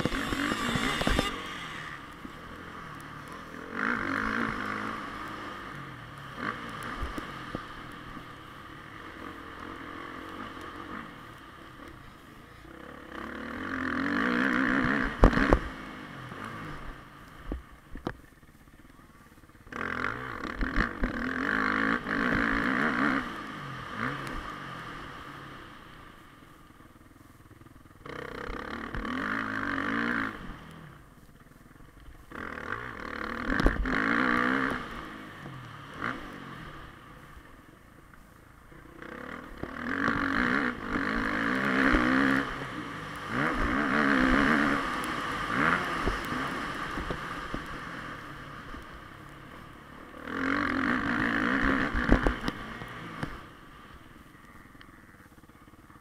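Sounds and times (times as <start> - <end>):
motorbike engine revving hard: 0.0 - 2.1, 13.1 - 15.8, 32.3 - 35.1, 39.0 - 47.9, 50.2 - 53.4.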